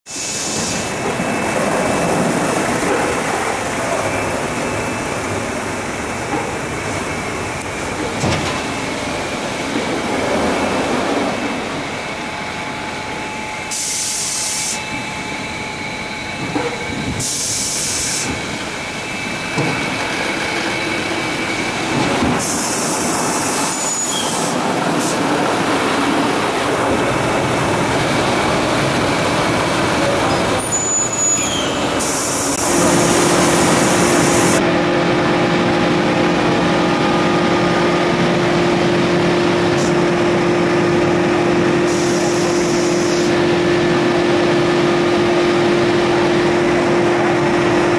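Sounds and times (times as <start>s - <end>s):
car wash machinery: 31.8s - 47.9s.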